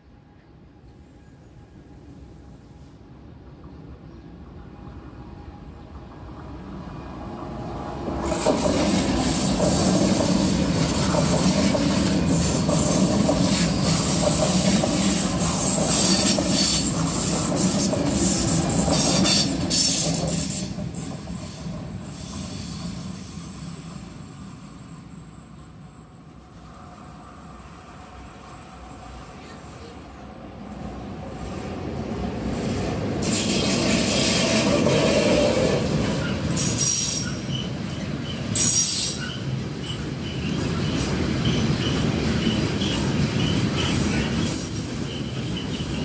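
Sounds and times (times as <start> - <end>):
electric train passing: 0.0 - 46.0.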